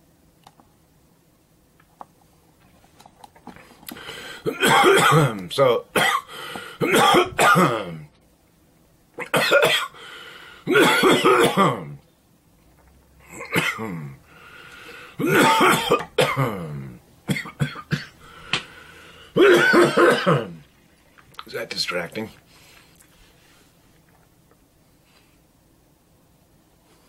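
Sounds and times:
man coughing: 4.4s - 5.4s, 6.0s - 8.1s, 9.2s - 10.0s, 10.7s - 12.0s, 13.3s - 14.2s, 15.2s - 18.2s, 19.4s - 20.6s.

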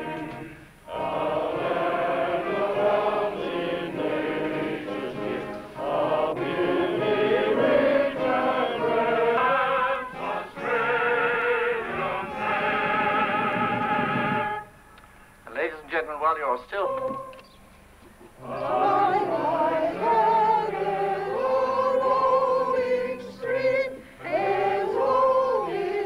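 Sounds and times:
many voices singing: 0.0s - 14.6s, 18.4s - 26.0s
brass band playing: 0.0s - 14.8s.

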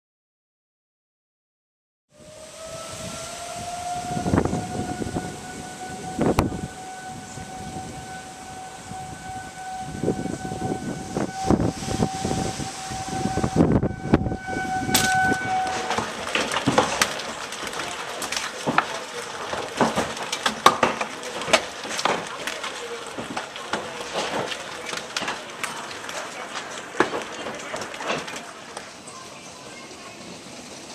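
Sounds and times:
warning siren steady tone: 2.1s - 19.8s
hailstones rattling against house: 10.8s - 30.9s.

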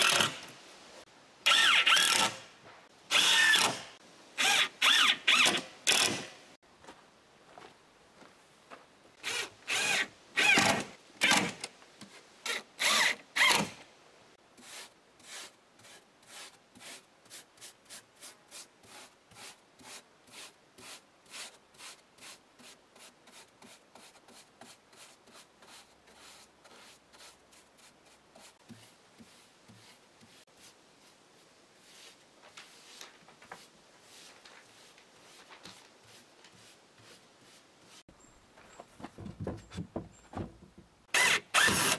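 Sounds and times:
light brush strokes: 14.3s - 38.9s
paintbrush scraping on wood: 14.6s - 38.1s.

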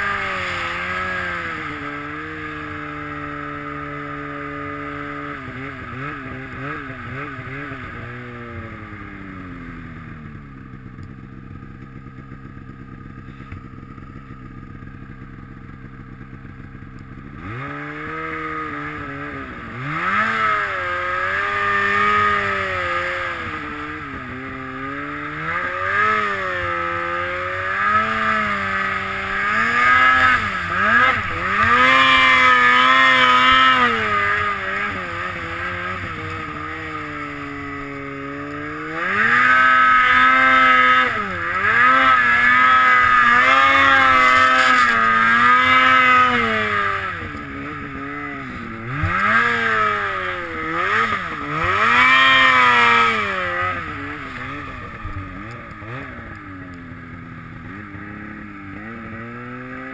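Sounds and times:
snowmobile engine revving: 0.0s - 11.0s, 15.8s - 59.9s.

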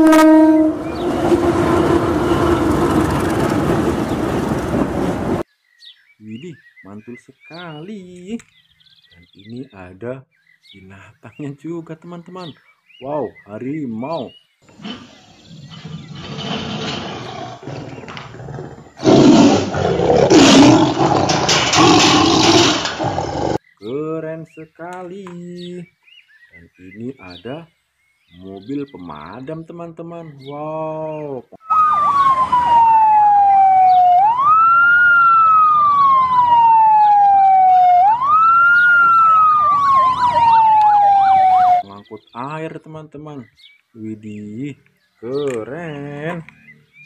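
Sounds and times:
tiger roaring: 14.7s - 23.6s
siren yelping: 31.6s - 41.8s
siren wailing: 31.6s - 41.9s.

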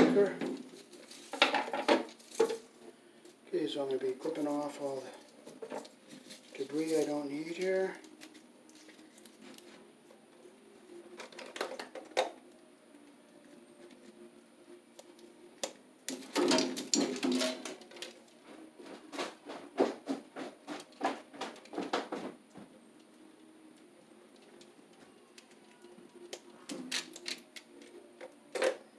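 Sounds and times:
cable rustling: 0.4s - 2.9s, 3.8s - 9.9s.

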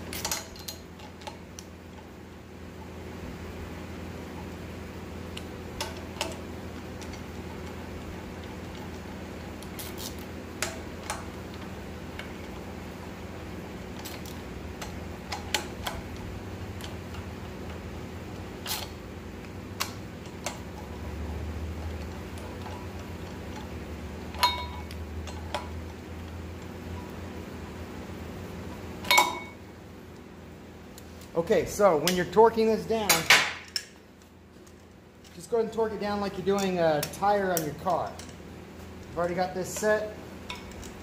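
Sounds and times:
steady low hum: 0.0s - 41.0s
torque wrench metallic clicks: 36.6s - 38.4s.

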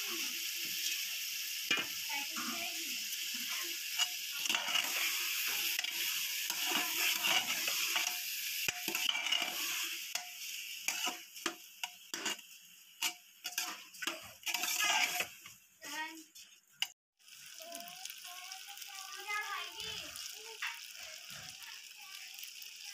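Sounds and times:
food sizzling: 0.0s - 22.9s
metal spatula scraping pot: 3.3s - 15.4s.

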